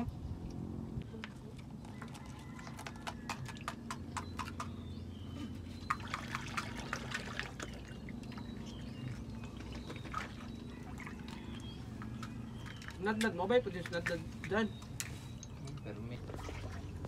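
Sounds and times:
water splashing and dripping: 5.8 - 17.0.

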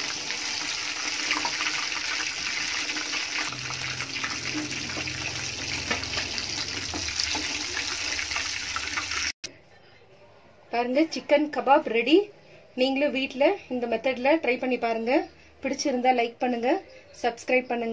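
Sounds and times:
meat deep-frying in hot oil: 0.0 - 9.4.

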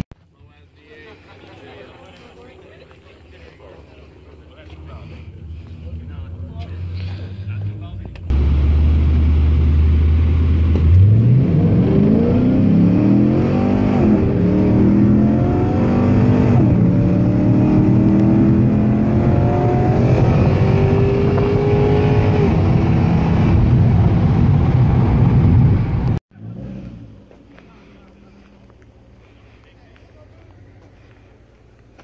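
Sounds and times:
car engine revving through gears: 8.3 - 27.3.

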